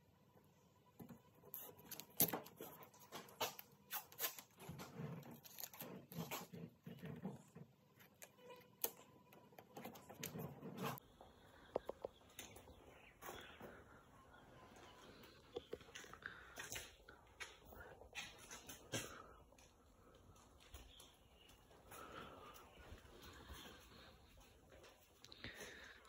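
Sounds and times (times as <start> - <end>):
masking tape ripping: 1.5 - 6.6.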